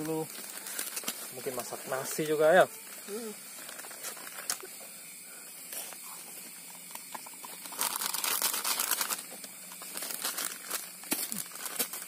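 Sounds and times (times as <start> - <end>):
plastic sachet tearing: 0.0 - 1.8, 7.4 - 12.0
steady hiss: 0.0 - 12.0.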